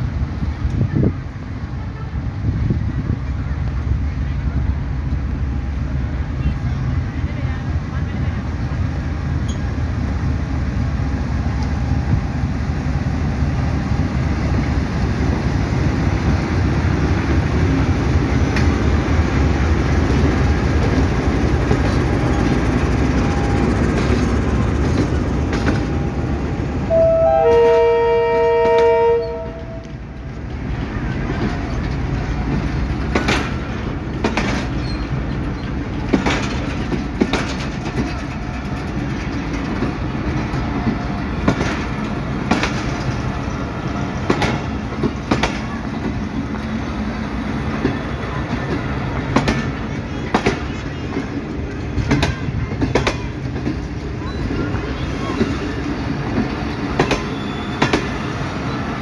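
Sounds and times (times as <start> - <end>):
train rumble: 0.0 - 59.0
train wheels clicking over rail joints: 15.8 - 26.6, 29.9 - 59.0
locomotive horn blast: 26.9 - 30.0.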